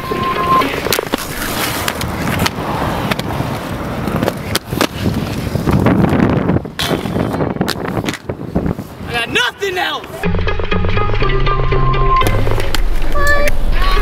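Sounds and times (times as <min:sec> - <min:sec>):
inline skates rolling on concrete: 0:00.0 - 0:09.2
wind buffeting microphone: 0:02.0 - 0:09.3.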